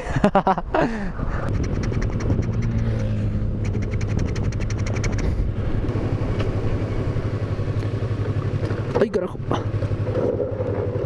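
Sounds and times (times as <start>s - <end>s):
rapid ticking: 1.5s - 3.0s, 3.6s - 5.3s
motorcycle engine running: 1.5s - 11.0s.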